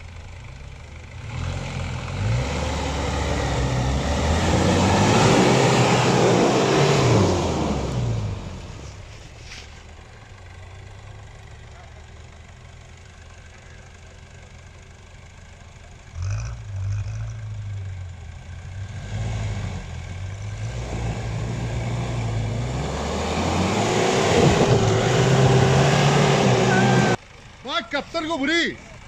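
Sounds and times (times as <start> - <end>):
car engine revving: 1.1 - 9.0, 16.0 - 27.2
tyres churning mud: 20.7 - 27.2.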